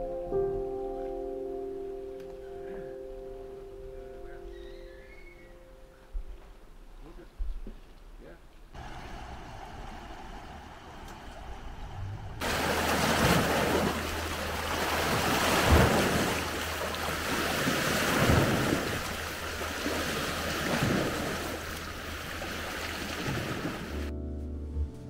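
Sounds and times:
wind buffeting microphone: 8.8 - 24.1.

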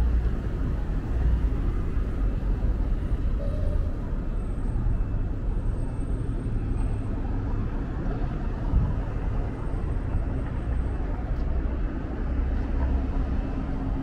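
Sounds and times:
low rumble of road traffic: 0.0 - 14.0
wind buffeting microphone: 8.5 - 11.0.

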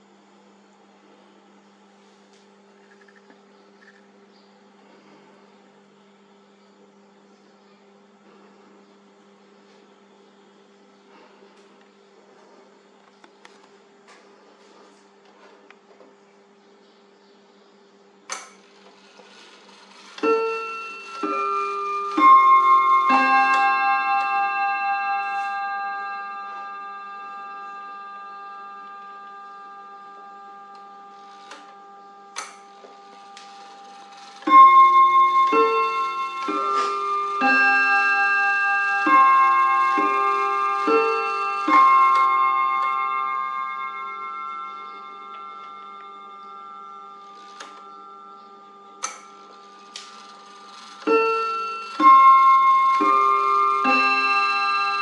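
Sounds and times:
clock chime notes ringing: 18.3 - 55.0.

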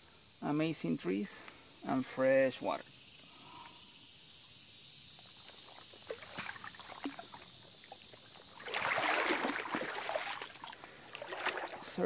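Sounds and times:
water sloshing as person wades: 5.2 - 12.0.

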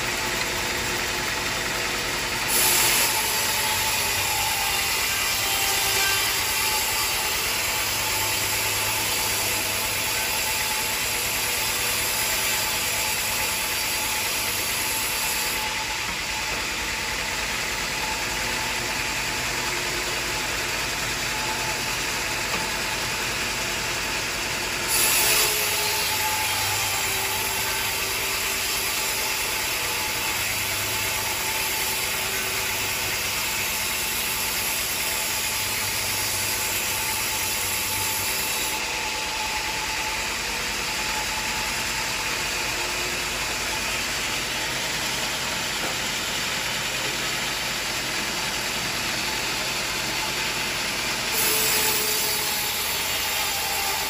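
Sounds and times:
band saw cutting wood: 0.0 - 54.0.

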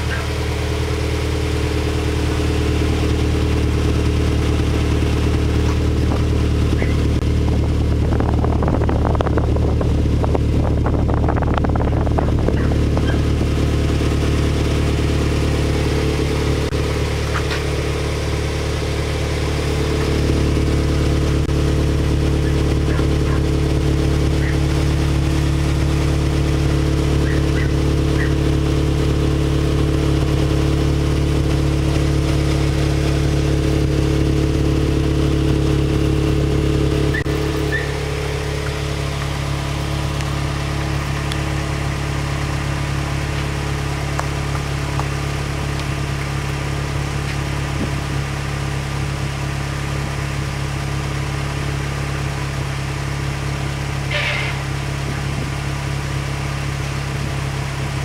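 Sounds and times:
car engine idling: 0.0 - 58.0.

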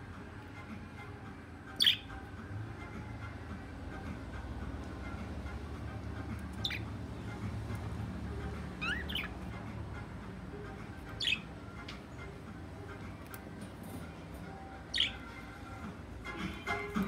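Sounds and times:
budgerigars chirping: 1.8 - 2.1, 6.6 - 6.9, 8.8 - 9.4, 11.2 - 11.5.

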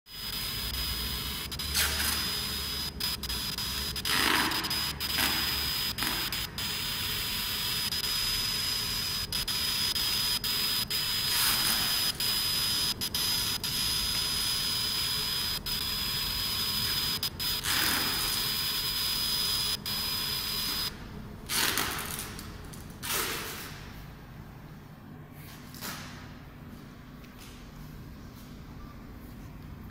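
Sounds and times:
laser marking machine hissing: 0.1 - 20.9.

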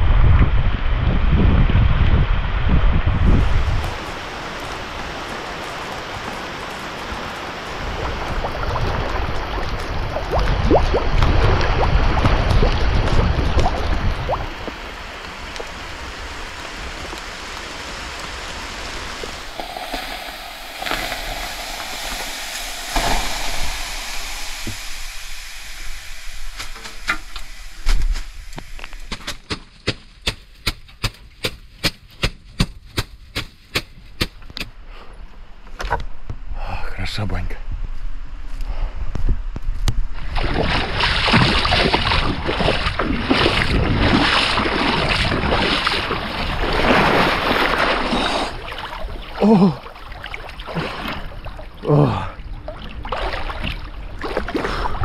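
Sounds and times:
wind gusting against microphone: 0.0 - 29.4, 35.4 - 55.0
water hissing on hot stones: 3.4 - 11.1, 14.2 - 29.3, 47.3 - 50.4, 51.8 - 52.2.

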